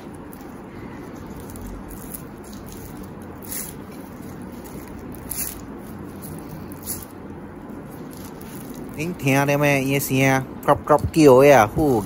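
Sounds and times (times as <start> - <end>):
crispy pancake crackling when torn: 0.0 - 9.2.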